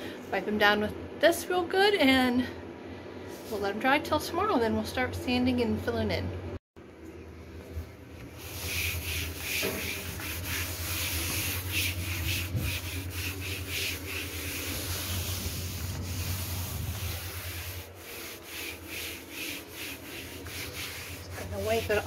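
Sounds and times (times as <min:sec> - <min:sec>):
steady low hum: 0:00.0 - 0:22.0
gloved hand scrubbing panel: 0:08.2 - 0:22.0.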